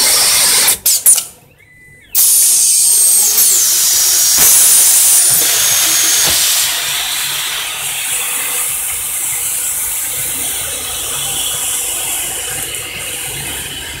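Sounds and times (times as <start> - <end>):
mechanical workshop noise: 0.0 - 14.0
compressed air hissing: 2.2 - 12.3.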